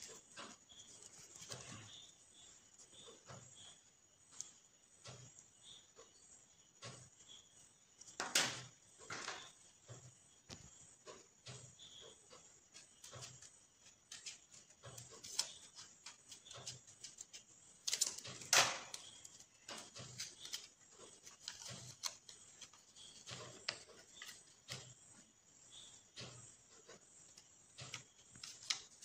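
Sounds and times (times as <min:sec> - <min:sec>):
paper rustling and crinkling: 0:14.1 - 0:24.9.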